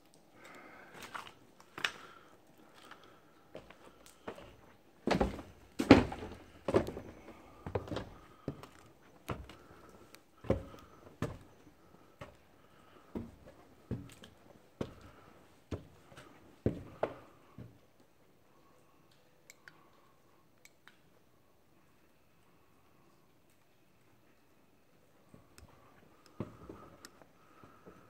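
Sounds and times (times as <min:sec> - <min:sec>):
footsteps on debris and stairs: 0:02.7 - 0:09.7, 0:10.4 - 0:12.4, 0:13.1 - 0:17.7.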